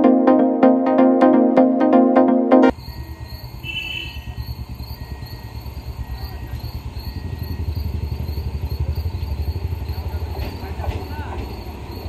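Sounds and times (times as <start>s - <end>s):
electronic intro music: 0.0s - 2.7s
crickets chirping: 2.7s - 12.0s
electric train rumbling: 4.6s - 12.0s.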